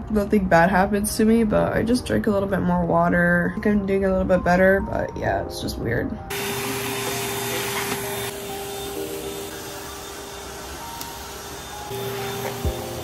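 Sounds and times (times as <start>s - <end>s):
vacuum cleaner running: 6.3s - 13.0s.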